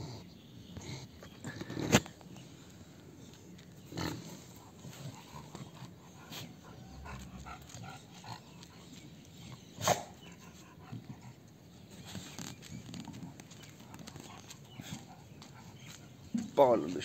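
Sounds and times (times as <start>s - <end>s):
puppies moving: 1.2s - 17.0s.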